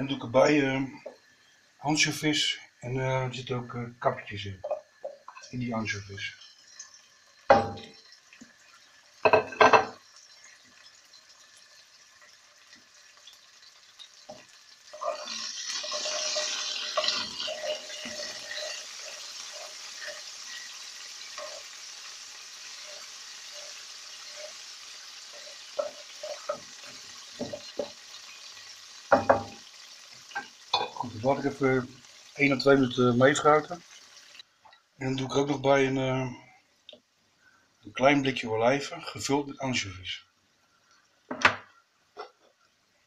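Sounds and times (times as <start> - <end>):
food sizzling in oil: 4.6 - 34.5
spatula scraping and tapping pan: 14.3 - 21.8, 22.7 - 29.6.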